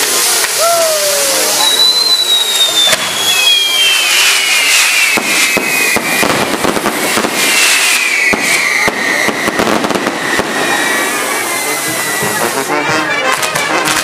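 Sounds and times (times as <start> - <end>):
firework hiss: 0.0 - 14.0
firework whistles: 0.0 - 14.0
crackle of small bangs: 4.0 - 11.0.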